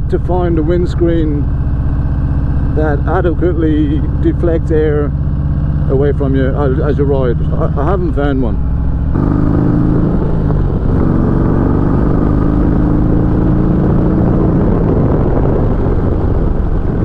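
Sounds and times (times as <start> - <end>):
motorcycle engine running: 0.0 - 17.0
wind noise on microphone: 9.1 - 17.0.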